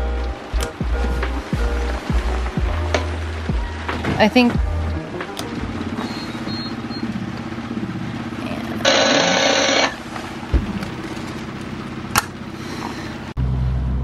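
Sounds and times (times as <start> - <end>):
electronic alarm: 6.0 - 7.2, 8.8 - 10.0.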